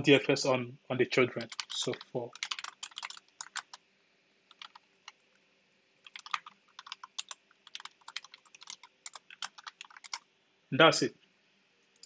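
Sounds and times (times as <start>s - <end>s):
typing on computer keyboard: 1.4s - 3.8s, 4.5s - 5.2s, 6.0s - 10.2s.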